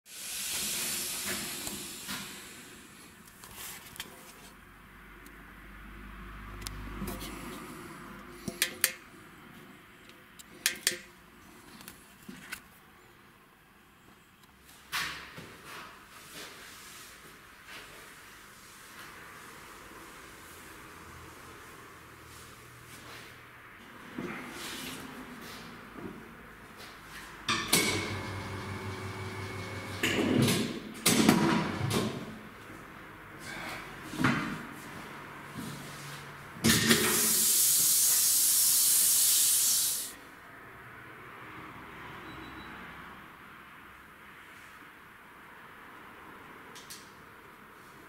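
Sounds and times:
machine hum: 27.5 - 30.2.

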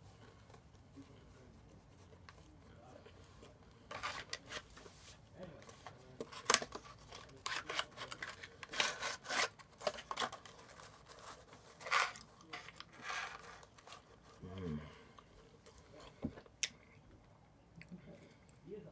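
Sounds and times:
paper packaging rustling: 3.3 - 14.4.

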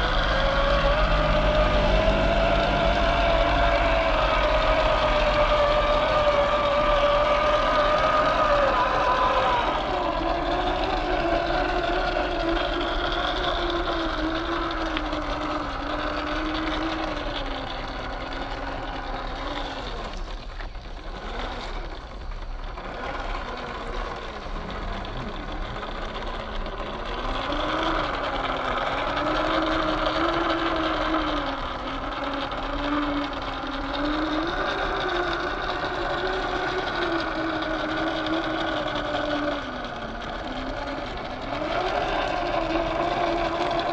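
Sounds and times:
electric motor whining: 0.0 - 43.9.

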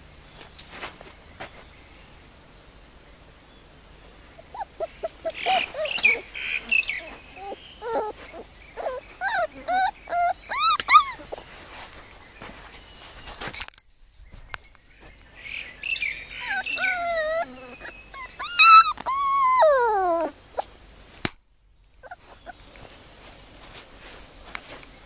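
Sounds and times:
puppy whining and whimpering: 4.4 - 11.5, 16.3 - 20.7, 22.0 - 22.8
puppy yelping: 4.4 - 11.5, 16.3 - 20.7, 22.0 - 22.8.

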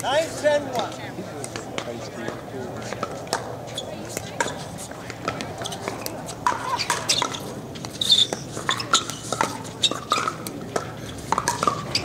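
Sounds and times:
shoe squeak: 3.7 - 4.7, 5.5 - 10.4, 11.0 - 12.0
paddles hitting ball: 4.1 - 12.0.

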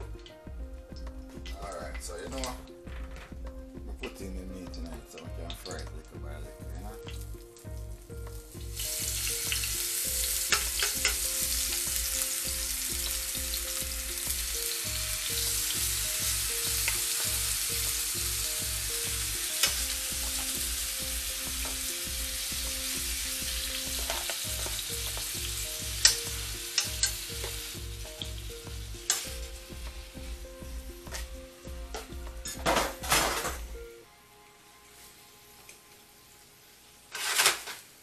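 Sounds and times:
meat sizzling in a frying pan: 7.1 - 32.6
tongs clicking against pan: 10.5 - 11.2, 26.0 - 27.6, 29.0 - 29.3.

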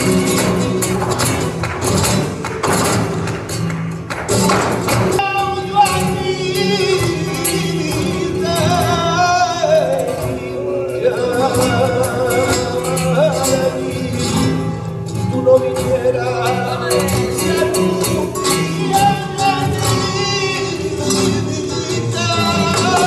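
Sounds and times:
dancers' footwork taps: 0.0 - 5.2
cajon taps: 0.0 - 10.4, 11.4 - 23.0
flamenco guitars: 0.0 - 23.0
person singing flamenco: 0.0 - 23.0.

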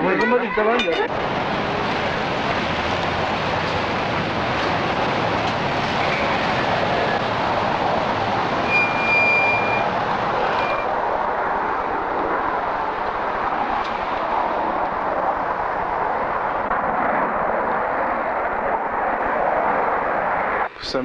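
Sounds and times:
jet engines rushing: 0.0 - 21.0
thin high whistle: 8.6 - 9.9.

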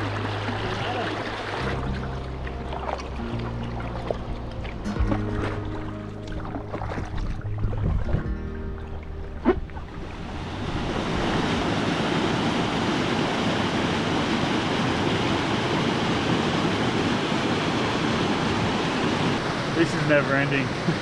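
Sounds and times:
whitewater rushing over boulders: 0.0 - 3.2, 10.0 - 21.0
music: 0.0 - 11.0.

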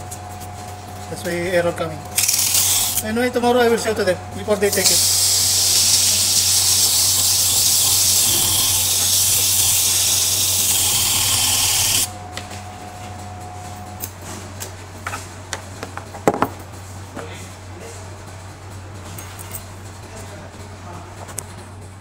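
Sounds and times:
electric motor running with hiss: 0.0 - 14.3.

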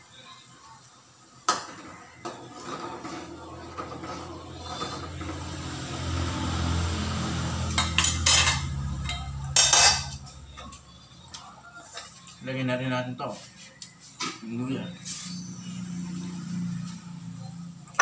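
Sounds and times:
metal ladle scraping a pan: 2.3 - 5.7.

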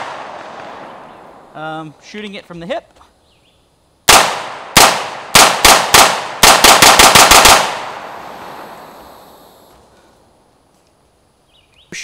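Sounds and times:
pistol shots with echo: 0.0 - 1.2, 4.1 - 8.1.

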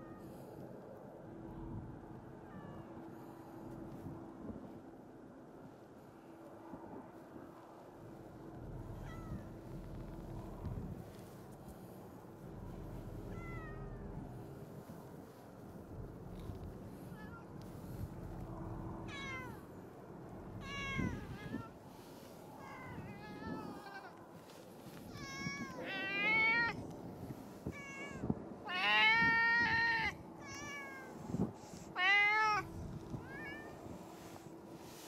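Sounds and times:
cat meowing: 19.1 - 19.6, 20.6 - 21.7, 27.7 - 31.2, 32.0 - 33.8.

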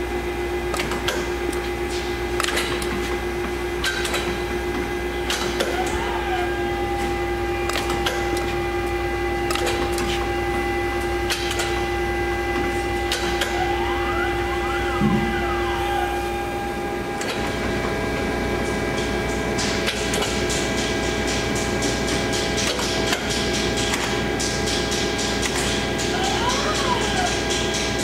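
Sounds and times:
machine electric hum and whine: 0.0 - 28.0
motor whine rising and falling: 5.9 - 18.9.

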